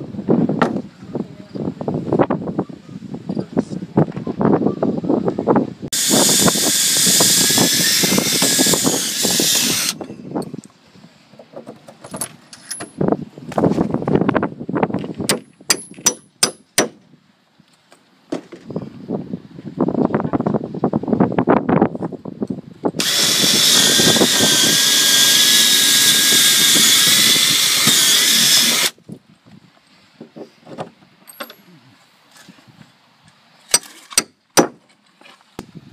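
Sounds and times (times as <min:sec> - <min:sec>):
cordless drill boring wood: 0:05.9 - 0:10.0, 0:23.0 - 0:28.9.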